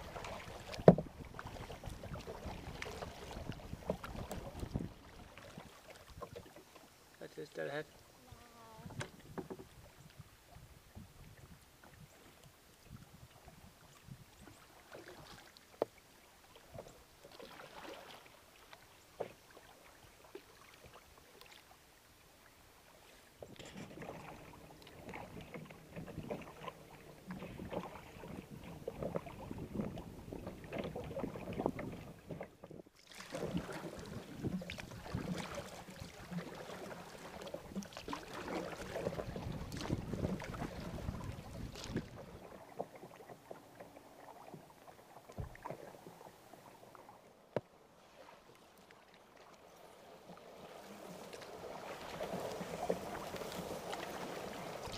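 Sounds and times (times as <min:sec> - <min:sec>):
wind on microphone: 0:00.0 - 0:05.6, 0:08.3 - 0:12.2, 0:12.8 - 0:14.5, 0:27.2 - 0:32.4, 0:39.0 - 0:42.4
paddle splashing: 0:00.0 - 0:54.9
water lapping against hull: 0:00.0 - 0:54.9.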